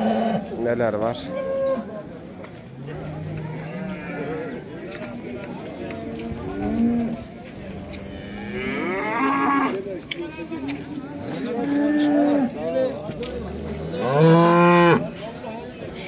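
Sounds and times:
cattle mooing: 8.1s - 9.8s, 13.7s - 15.1s.

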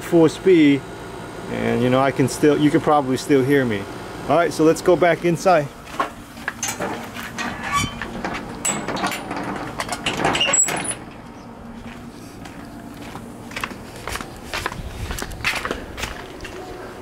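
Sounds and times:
air conditioner unit humming: 0.0s - 17.0s
footsteps in flip-flops on concrete: 5.8s - 7.4s, 11.7s - 17.0s
gate or door clacking: 6.6s - 11.3s.

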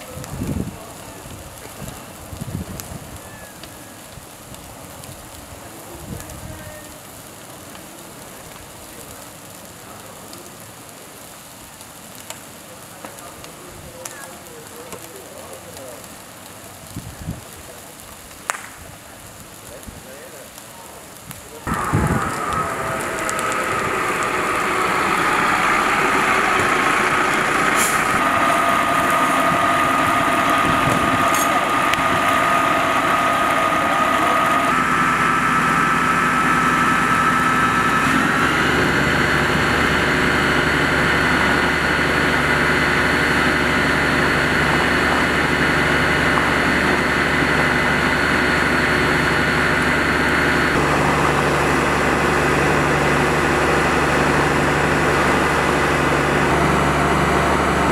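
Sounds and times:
fire engine pump running: 0.0s - 18.0s, 20.9s - 57.9s
deeper hum: 21.7s - 57.9s.

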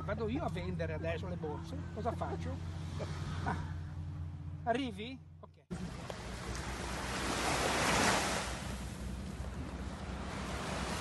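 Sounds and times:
small waves breaking on sand: 5.7s - 11.0s.

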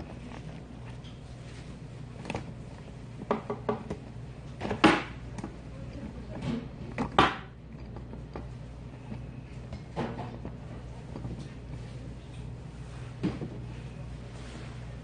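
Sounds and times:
steady low hum: 0.0s - 15.0s
dishes clinking and knocking: 3.2s - 4.0s.

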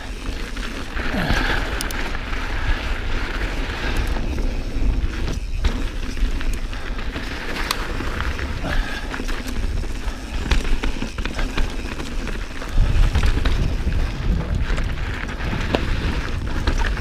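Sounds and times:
bike tyre noise and rattling: 0.0s - 17.0s.

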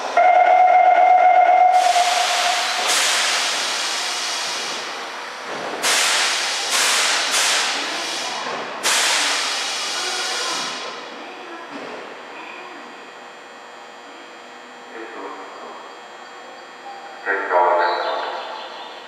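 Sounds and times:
pitched electronic tone: 0.2s - 2.8s
compressed air hissing: 1.8s - 4.9s, 5.8s - 10.8s.

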